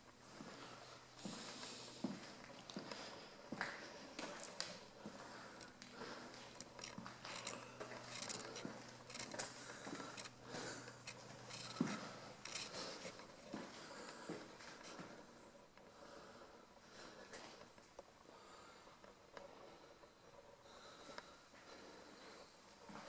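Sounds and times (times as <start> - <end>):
clicks and clinks among clutter: 4.2 - 4.8, 5.6 - 13.4.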